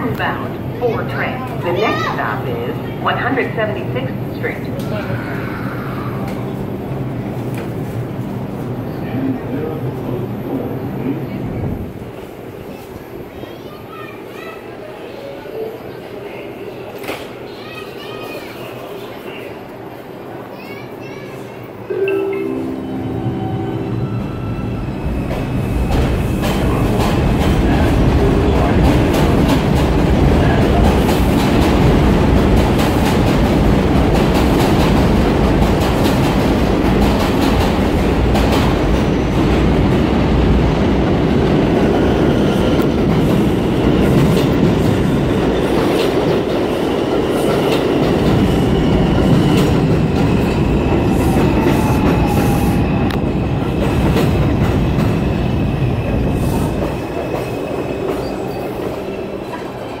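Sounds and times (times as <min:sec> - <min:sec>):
train wheels rumbling on rail: 0:23.4 - 1:00.0.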